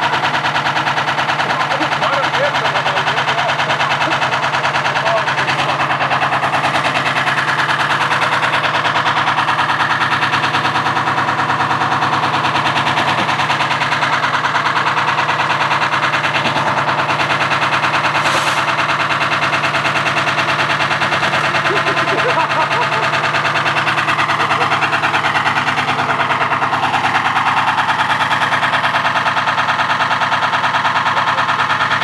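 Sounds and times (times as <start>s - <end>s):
washing machine drum hammering: 10.0s - 28.4s.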